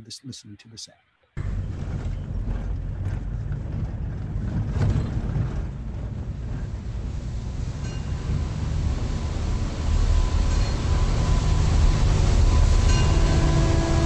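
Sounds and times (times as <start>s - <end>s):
low rumbling of thrashing water: 1.4s - 14.0s
ship's bell ringing: 7.8s - 14.0s
low horn: 8.2s - 14.0s.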